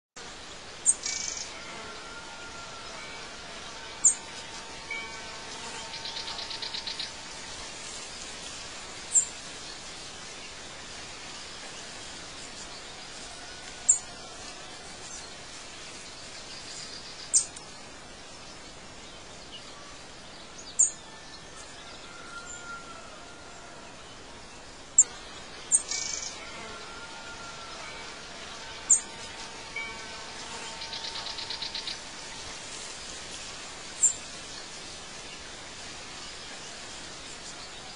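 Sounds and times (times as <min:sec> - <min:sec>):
steady hiss: 0:00.2 - 0:37.9
rapid buzzing bird trill: 0:00.8 - 0:07.5, 0:25.7 - 0:32.5.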